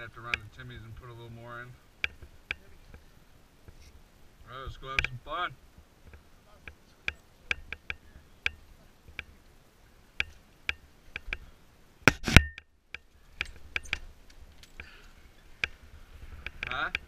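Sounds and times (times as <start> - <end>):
sharp clicks and knocks: 2.0 - 3.0, 4.9 - 5.2, 6.0 - 9.3, 10.2 - 11.5, 12.1 - 15.0.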